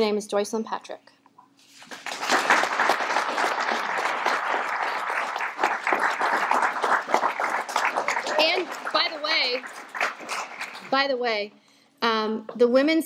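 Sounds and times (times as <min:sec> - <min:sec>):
audience applauding: 0:01.8 - 0:11.1.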